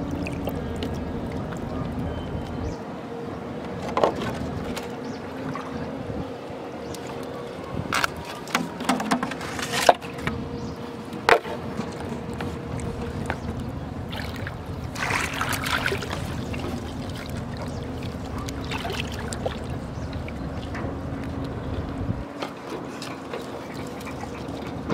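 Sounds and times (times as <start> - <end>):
low hum: 0.0 - 22.3
water sloshing: 0.0 - 24.9.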